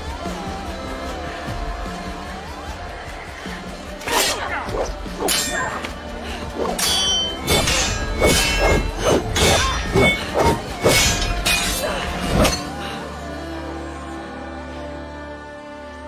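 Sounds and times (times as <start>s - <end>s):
steel swords clashing: 4.0s - 12.8s.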